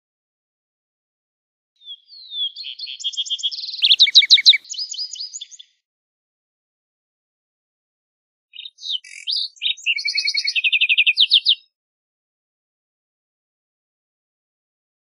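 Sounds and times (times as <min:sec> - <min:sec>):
sparrow singing: 0:01.8 - 0:05.7, 0:08.6 - 0:11.7.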